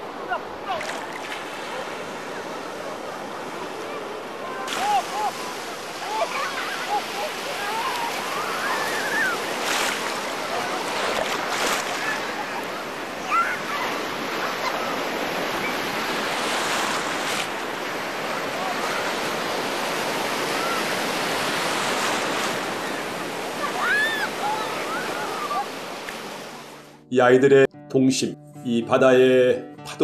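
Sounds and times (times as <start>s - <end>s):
surf breaking in shallows: 0.0s - 26.9s
children shouting faintly: 3.6s - 9.6s, 11.8s - 15.9s, 20.3s - 21.0s, 22.7s - 25.8s.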